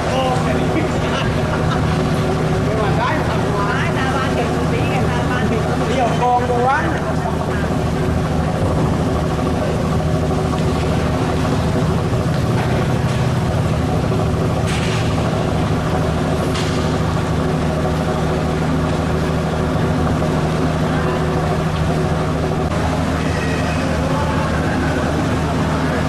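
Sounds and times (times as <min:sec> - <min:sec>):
boat engines humming: 0:00.0 - 0:26.0.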